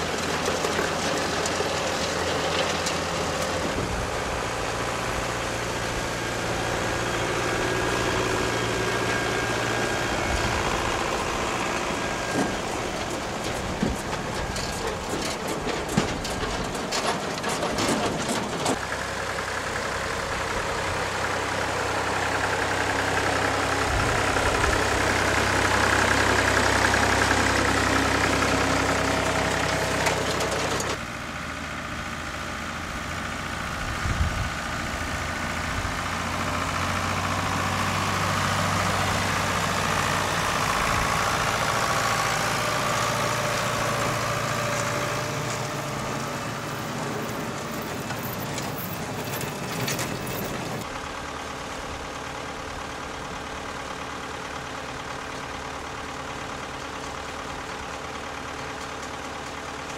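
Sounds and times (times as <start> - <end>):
harvester gear working: 0.0 - 31.1, 33.6 - 59.9
tractor engines running: 0.0 - 59.9
clatter of knocks: 12.2 - 18.8.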